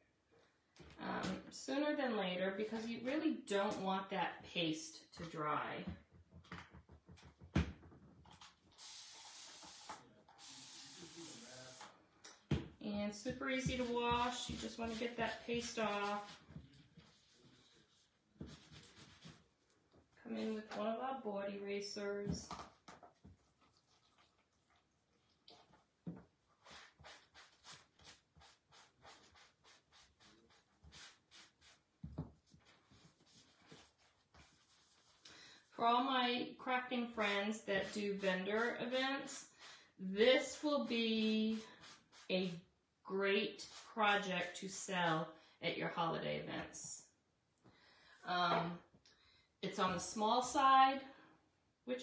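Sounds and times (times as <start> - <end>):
sponge scrubbing: 8.7 - 11.9, 13.2 - 19.4, 26.6 - 35.2, 37.2 - 39.4, 40.4 - 42.6
spray bottle hissing: 8.7 - 11.9.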